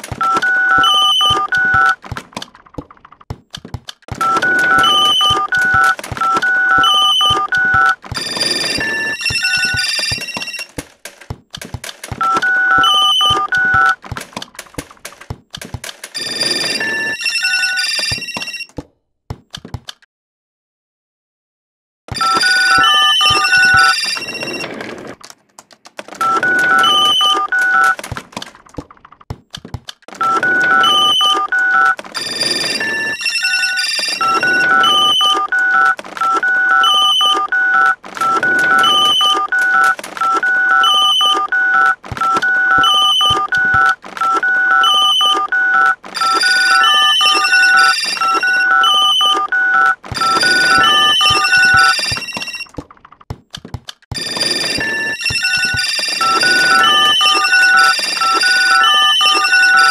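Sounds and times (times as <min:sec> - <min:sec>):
electronic beeping melody: 0:30.2 - 0:52.7, 0:54.2 - 0:59.9.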